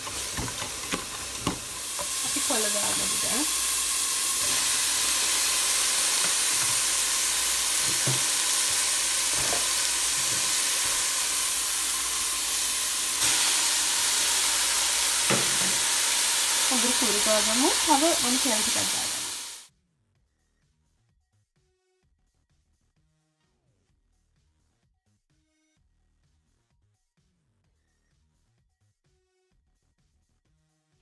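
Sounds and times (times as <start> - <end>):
greens sizzling in hot oil: 0.0 - 19.7.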